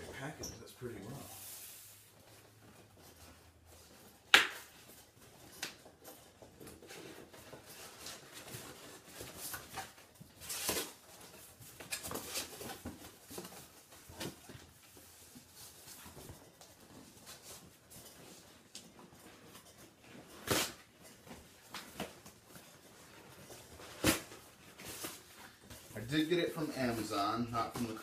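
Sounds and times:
cardboard sharp snap: 4.3s - 4.7s
cardboard scraping and rustling: 6.5s - 25.9s.

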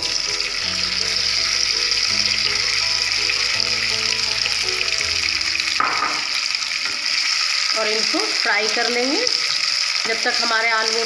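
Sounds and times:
background music with held notes: 0.0s - 6.9s
potatoes sizzling in oil: 0.0s - 11.0s.

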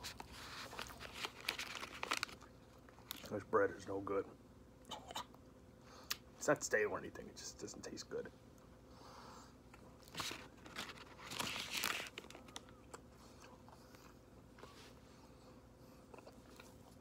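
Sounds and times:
sandwich crunching: 0.0s - 3.4s, 9.7s - 14.6s
quiet chewing: 12.2s - 17.0s.

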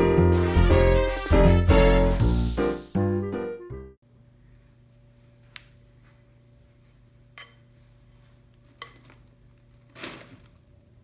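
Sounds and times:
spatula clinking on glass bowl: 7.4s - 7.6s, 8.8s - 9.1s.

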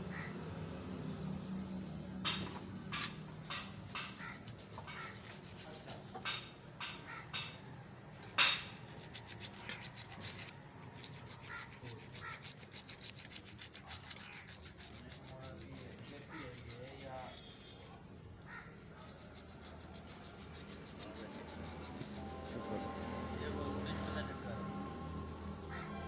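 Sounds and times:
fast rubbing scrape: 2.3s - 6.5s, 8.4s - 18.0s, 18.6s - 23.7s
sharp clicks and knocks: 6.0s - 7.6s.

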